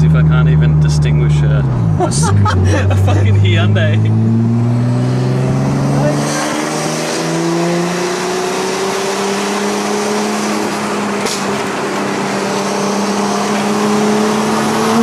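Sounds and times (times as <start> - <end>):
car engine pulling: 0.0 - 15.0.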